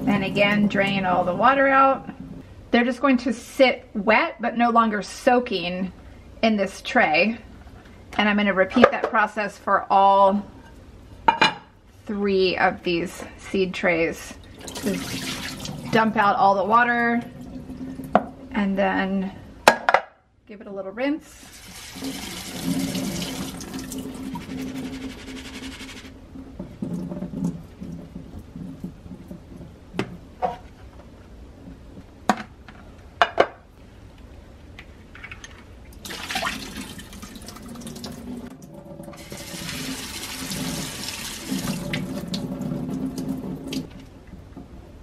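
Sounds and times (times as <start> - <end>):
water draining through plastic tray: 14.5 - 16.0, 21.5 - 24.8, 26.5 - 30.2, 35.4 - 44.0
faucet running into metal sink: 21.5 - 24.6, 36.0 - 43.9.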